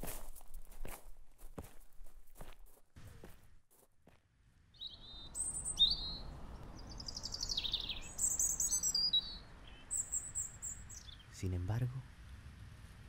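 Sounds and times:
songbird singing: 4.7s - 11.7s.

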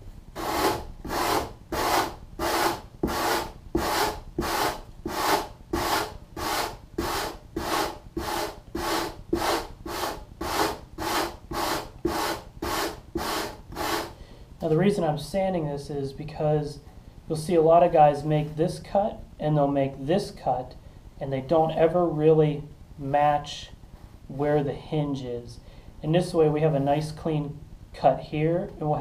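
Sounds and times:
sanding block scratching foam: 0.4s - 14.2s.

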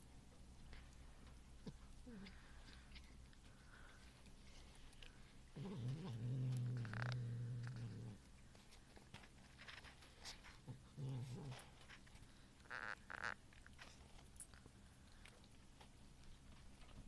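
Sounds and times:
faint chewing clicks: 0.1s - 17.0s
cat growling low: 5.5s - 8.3s, 10.6s - 11.9s.

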